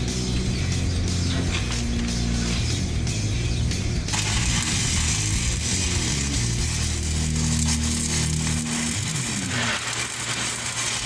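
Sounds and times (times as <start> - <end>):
background music: 0.0 - 11.0
welding arc crackling: 4.1 - 11.0.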